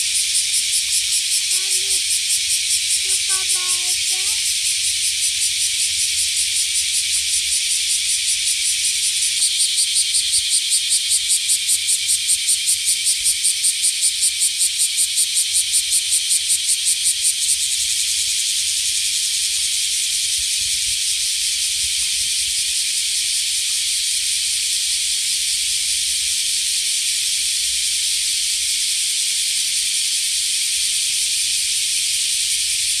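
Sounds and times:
cicada buzzing: 0.0 - 7.0.

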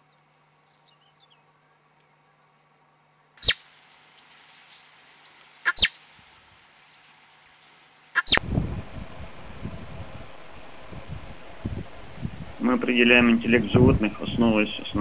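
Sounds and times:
rumbling outdoor background noise: 0.0 - 15.0
marmot alarm calls: 3.4 - 3.7, 5.6 - 6.0, 8.2 - 8.4.

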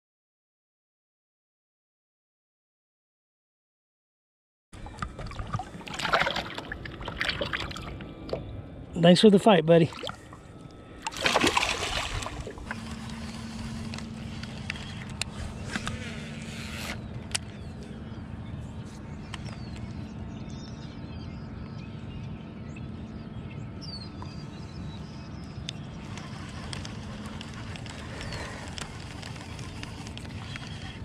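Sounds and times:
faint water noise: 4.8 - 8.5, 9.8 - 15.4
steady low hum: 4.8 - 31.0
fish splashing at surface: 5.2 - 7.9, 11.1 - 12.9.

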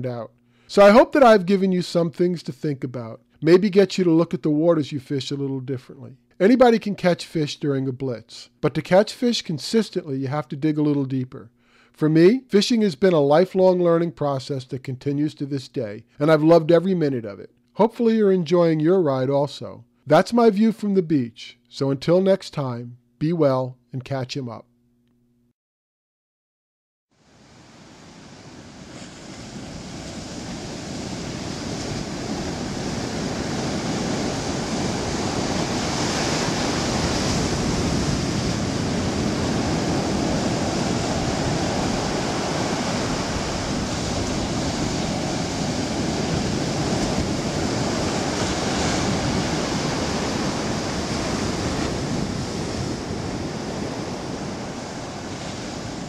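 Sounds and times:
waves washing up a beach: 27.2 - 56.0.

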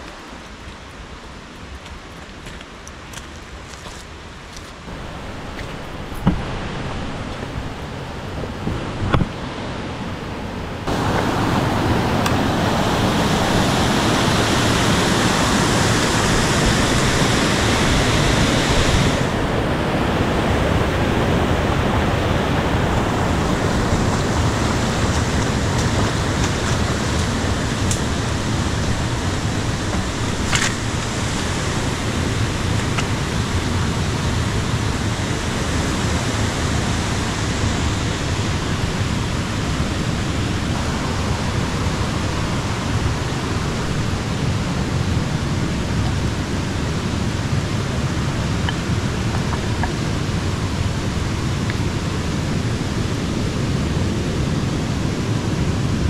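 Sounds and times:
stream rushing: 0.0 - 56.0.

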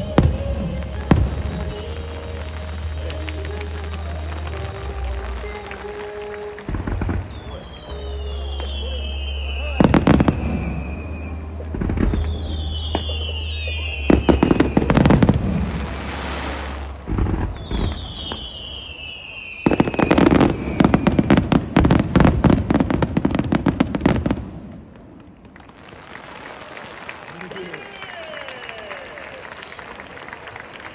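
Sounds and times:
fireworks bangs and crackling: 0.0 - 29.4
whistling fireworks: 0.0 - 30.9.

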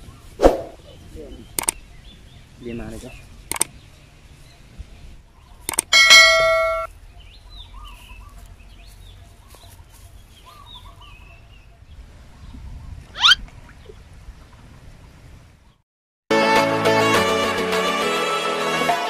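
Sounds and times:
faint birds chirping: 0.0 - 15.8
quick rising sweep: 0.4 - 0.8
bell-like ding: 5.9 - 6.9.

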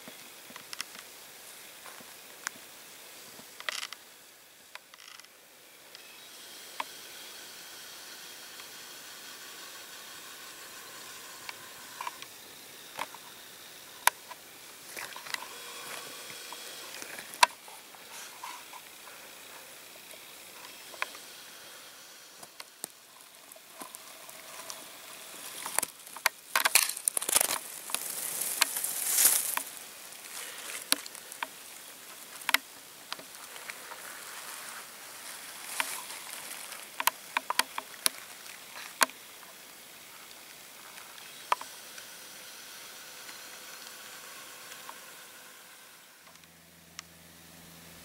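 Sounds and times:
rustling over heather: 23.1 - 39.0.

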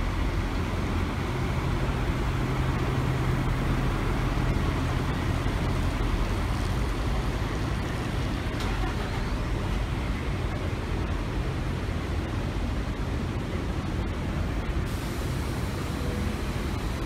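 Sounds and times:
coach diesel engine pulling away: 0.0 - 10.4
traffic noise: 0.0 - 17.0.

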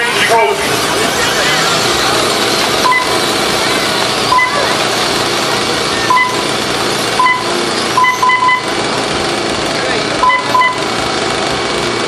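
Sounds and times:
short high electronic beeps: 2.8 - 3.2, 4.3 - 4.7, 5.9 - 6.5, 7.2 - 8.8, 10.2 - 10.8.

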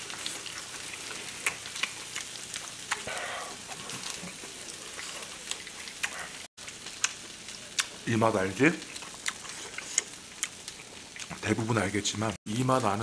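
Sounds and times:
meat sizzling on grill pan: 0.0 - 12.0.

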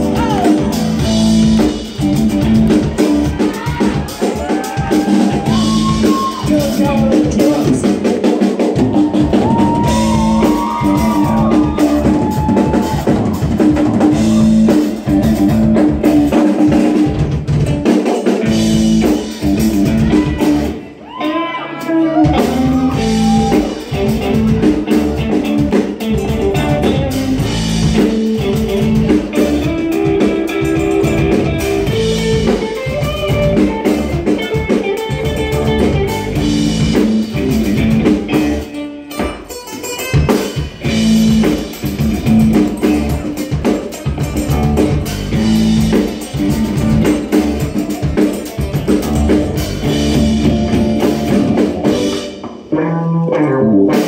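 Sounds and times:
gliding lead guitar line: 0.0 - 54.0
live rock band playing: 0.0 - 54.0.

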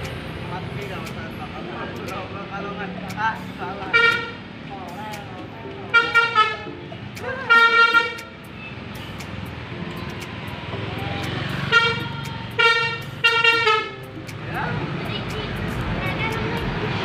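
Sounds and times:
bus engine running: 0.0 - 17.0
bus horn blasts: 3.9 - 4.4, 5.9 - 6.7, 7.5 - 8.8, 11.6 - 14.0.

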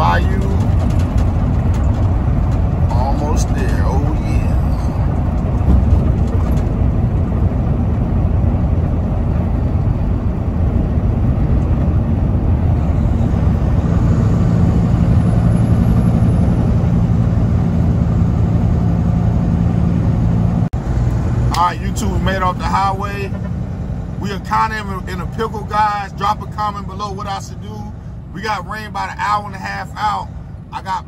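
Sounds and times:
tyre noise on road: 0.0 - 24.3
diesel engine drone: 0.0 - 31.0.

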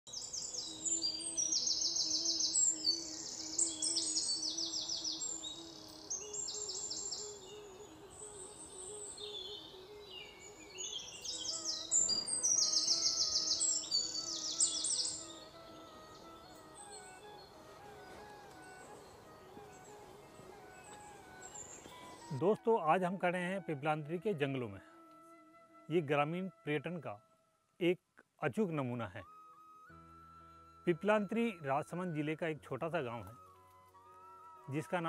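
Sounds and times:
birds chirping and trilling: 0.1 - 22.4
soft melodic background music: 0.1 - 27.5, 28.4 - 35.0.

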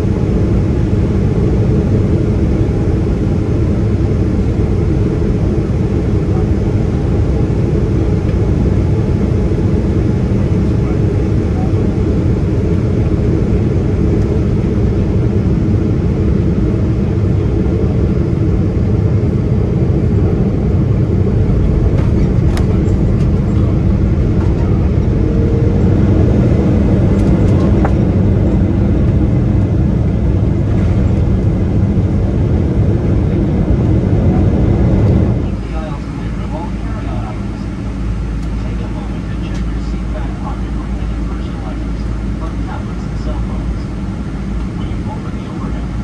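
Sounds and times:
jet engines and airflow rushing: 0.0 - 46.0.

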